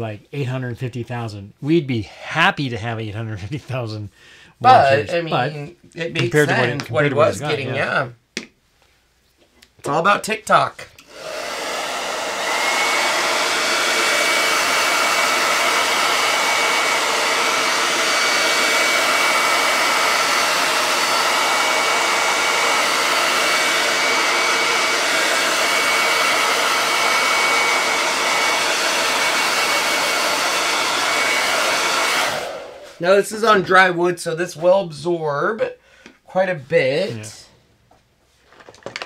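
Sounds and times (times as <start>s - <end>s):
hot-air dryer blowing: 11.0s - 33.1s.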